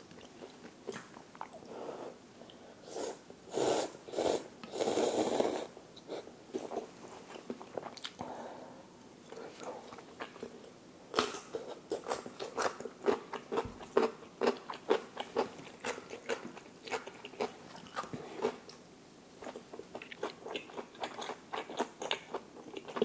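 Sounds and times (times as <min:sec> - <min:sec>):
crunching and chewing: 0:09.9 - 0:18.8, 0:19.4 - 0:23.0.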